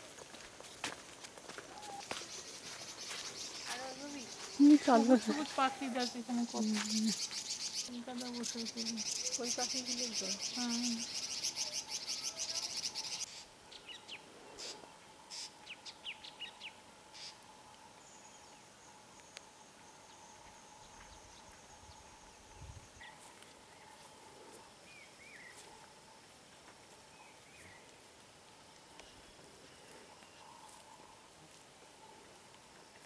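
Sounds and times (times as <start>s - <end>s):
wild birds calling: 1.6s - 17.6s, 28.6s - 32.9s
rapid insect buzz: 2.0s - 13.6s
faint steady tone: 10.6s - 33.0s.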